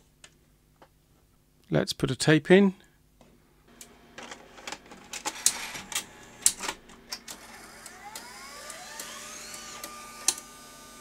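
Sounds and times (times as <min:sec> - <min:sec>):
motor whine: 0:03.7 - 0:11.0
tape deck mechanical clicks: 0:04.2 - 0:10.6.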